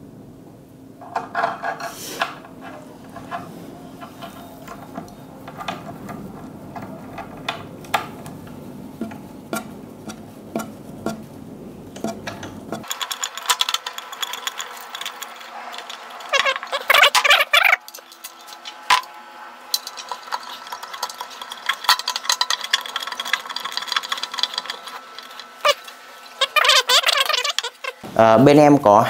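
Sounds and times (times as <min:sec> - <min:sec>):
background hum: 0:00.0 - 0:29.0
screwdriver clicking and squeaking: 0:12.0 - 0:19.1, 0:19.7 - 0:28.0
high-pitched rattling: 0:12.0 - 0:28.0.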